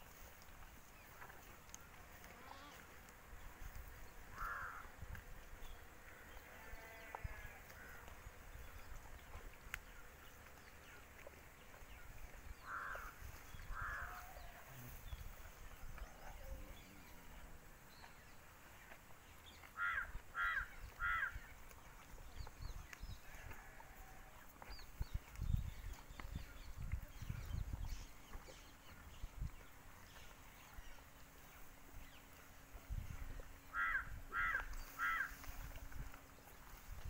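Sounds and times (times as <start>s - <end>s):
crows cawing: 4.3s - 4.9s, 12.6s - 14.2s, 19.8s - 21.4s, 33.7s - 35.4s.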